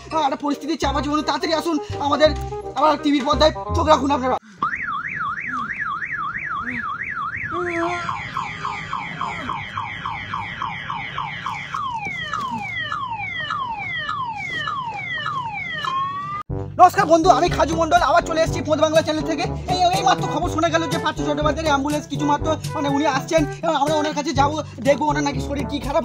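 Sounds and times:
electronic siren wailing: 4.6 - 16.4.

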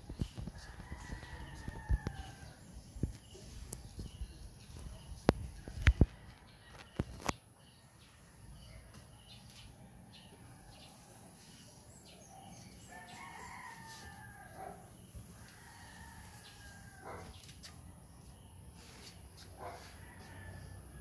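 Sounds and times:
rooster crowing faintly: 12.8 - 17.4.

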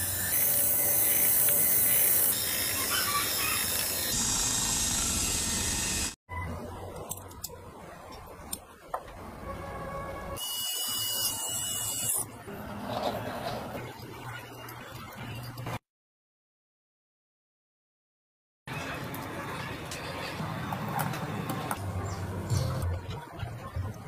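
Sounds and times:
loud mechanical noise: 0.0 - 6.2.

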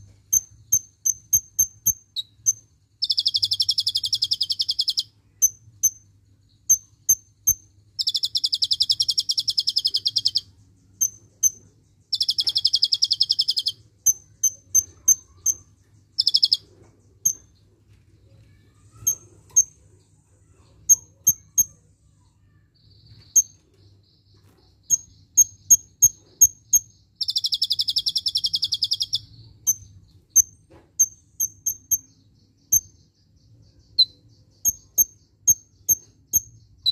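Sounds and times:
bird high chips: 18.4 - 19.8.

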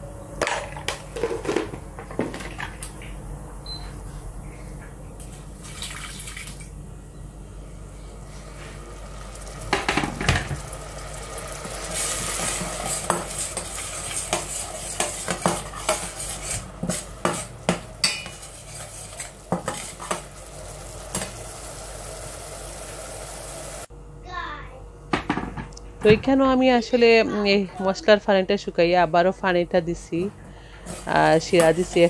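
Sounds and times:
paste sizzling: 10.5 - 23.9, 30.9 - 32.0
metal spatula scraping a pot: 12.3 - 20.2.

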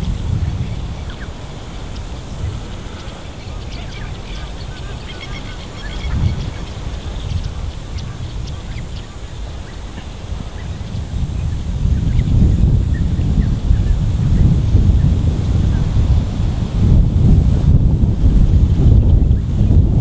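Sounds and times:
birds calling high short notes: 0.0 - 11.0
low wind rumble on microphone: 0.0 - 20.0.

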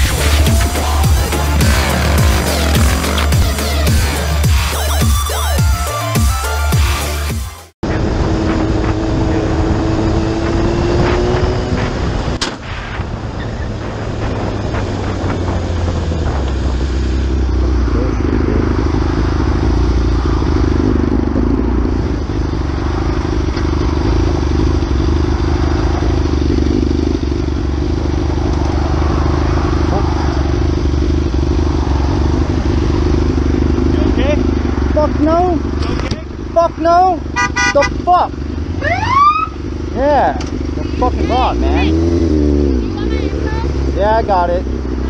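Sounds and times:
motorcycle engine running: 0.0 - 5.4, 7.8 - 12.4, 13.1 - 45.0
wind noise: 7.9 - 18.7.

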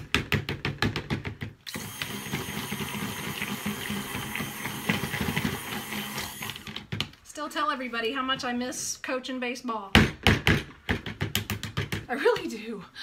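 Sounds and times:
stick blender motor running: 1.7 - 6.8.

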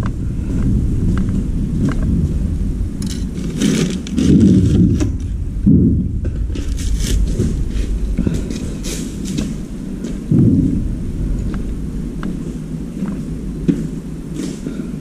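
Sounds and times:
heavy bumps: 0.0 - 15.0
steady low rumble: 0.0 - 15.0
objects scraping on concrete floor: 3.0 - 5.3.

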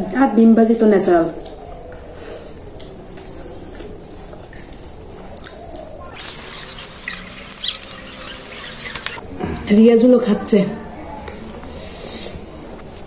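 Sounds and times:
person chewing food: 1.4 - 9.2.

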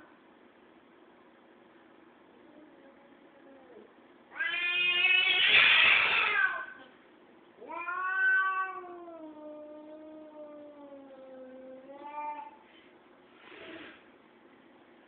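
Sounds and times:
cat yowling: 4.3 - 6.8, 7.6 - 12.6.

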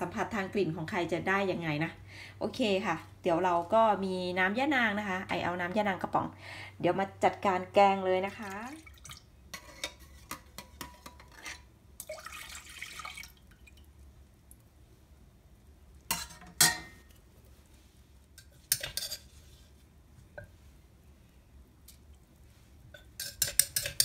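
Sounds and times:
liquid dripping and splashing: 8.4 - 9.3, 12.0 - 14.7
spoon clinking against metal pot: 16.1 - 17.1, 18.4 - 19.3, 22.9 - 24.0.

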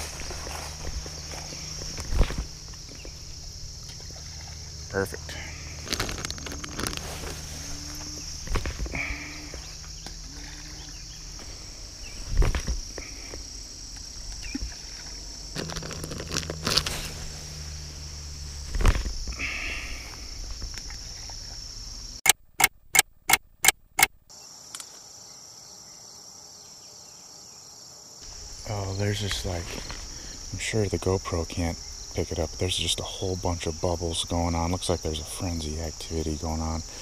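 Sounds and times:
footsteps in grass: 0.0 - 4.8, 5.5 - 19.6, 29.3 - 30.6
crickets and insects chirping: 0.0 - 22.3, 24.3 - 37.0
sharp clicks: 22.2 - 24.9.

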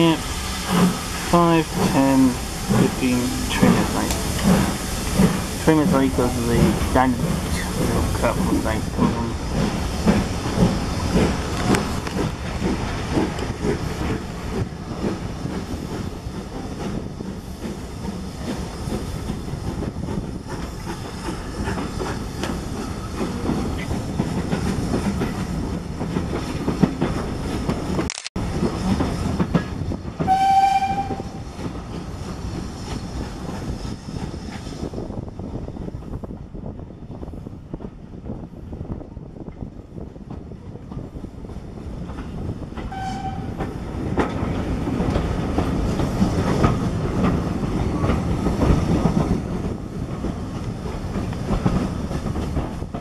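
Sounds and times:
steam locomotive exhaust beats: 0.0 - 27.8, 28.5 - 35.1
train wheels clattering on rails: 0.0 - 36.3, 39.4 - 53.0
steam whistle blast: 30.3 - 31.2.

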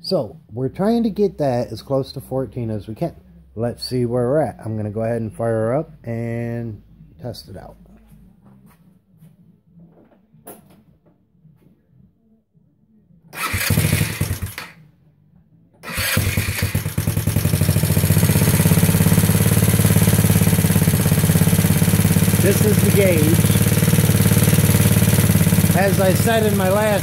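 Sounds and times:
scooter engine starting and running: 13.3 - 14.8, 15.8 - 27.0.

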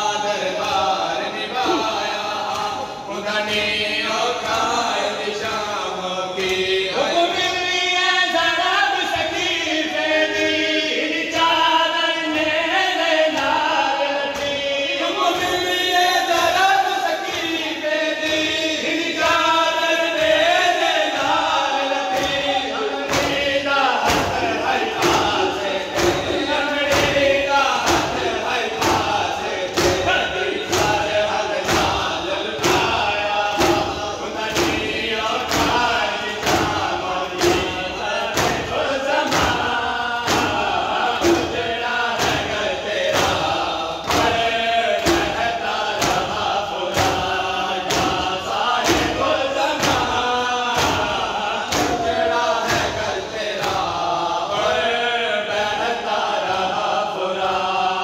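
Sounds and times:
hands slapping chest rhythmically: 0.0 - 58.0
men chanting in chorus: 0.0 - 58.0.

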